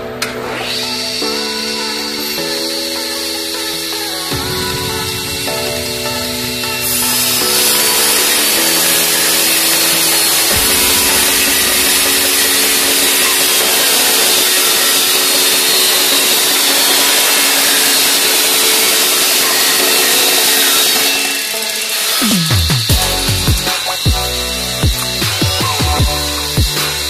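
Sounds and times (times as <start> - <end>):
table saw cutting wood: 0.2 - 27.0.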